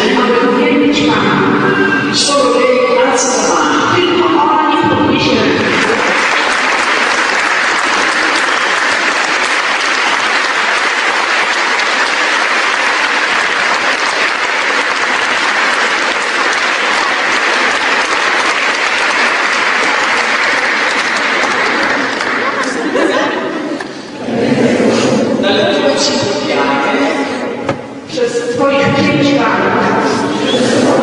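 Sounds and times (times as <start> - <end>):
crowd applauding: 5.5 - 24.0.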